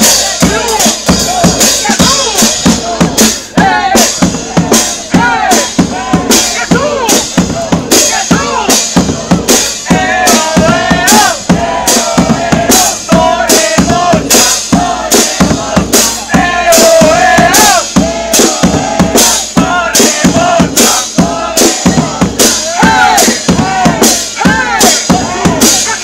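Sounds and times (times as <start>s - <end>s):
brass band playing: 0.0s - 26.0s
drum kit beat: 0.0s - 26.0s
people singing along: 0.0s - 26.0s
voice through a megaphone: 0.2s - 11.8s, 21.3s - 26.0s.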